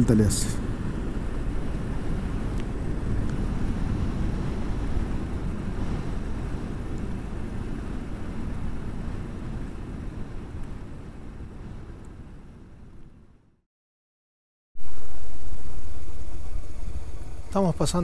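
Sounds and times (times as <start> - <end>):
wind on microphone: 0.6 - 13.3.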